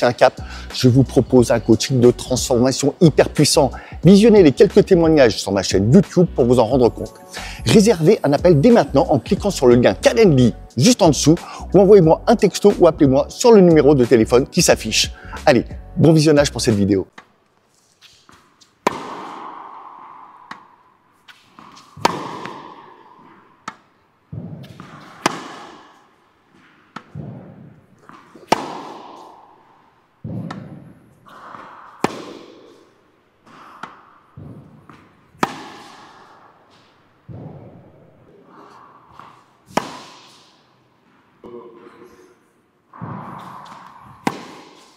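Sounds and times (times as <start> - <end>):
racket hitting tennis ball: 18.0 - 41.2, 42.9 - 44.9
tennis balls bouncing on court: 18.0 - 41.4, 42.9 - 44.9.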